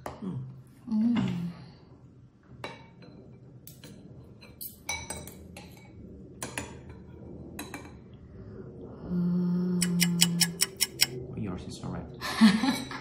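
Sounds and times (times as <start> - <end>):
cutlery clinking on ceramic bowls: 9.8 - 11.1.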